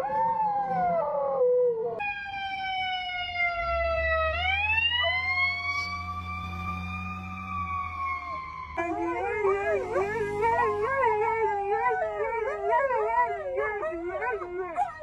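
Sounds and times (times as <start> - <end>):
siren wailing: 0.0 - 15.0
dog howling: 8.2 - 15.0.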